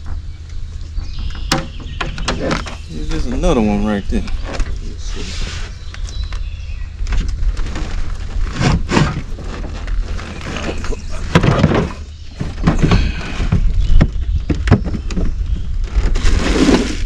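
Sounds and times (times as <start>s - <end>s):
knocks and thumps in boat: 1.0s - 3.5s, 7.1s - 16.9s.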